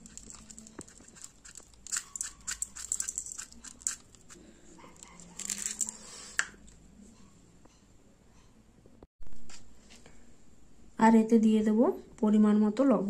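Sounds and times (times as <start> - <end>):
sugar crystals ticking into bowl: 0.0 - 4.4.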